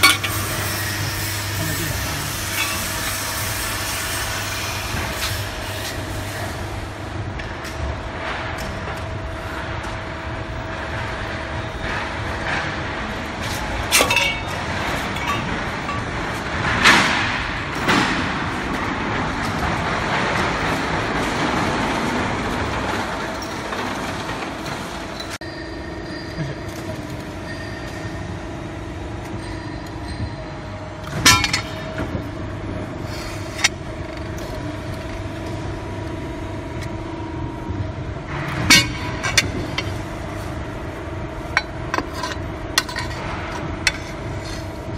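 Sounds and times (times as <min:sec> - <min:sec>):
metallic clanks of steel sheet: 0:00.0 - 0:00.8, 0:11.8 - 0:21.8, 0:31.0 - 0:32.2
hydraulic press hum: 0:00.0 - 0:44.9.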